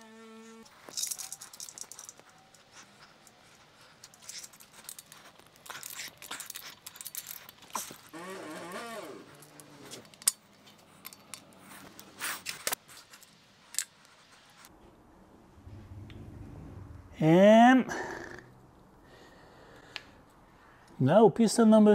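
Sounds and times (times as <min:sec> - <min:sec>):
metal engine parts clinking: 0:04.0 - 0:08.0, 0:09.4 - 0:11.6.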